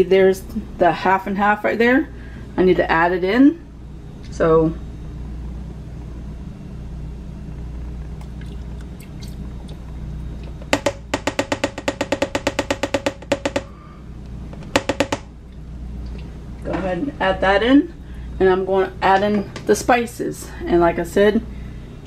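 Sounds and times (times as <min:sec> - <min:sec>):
steady low hum: 0:00.0 - 0:22.0
liquid glugging from container: 0:08.0 - 0:10.7.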